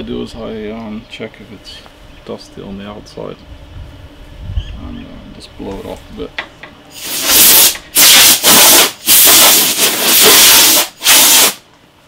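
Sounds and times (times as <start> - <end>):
compressed air blow gun hissing: 6.9 - 11.6.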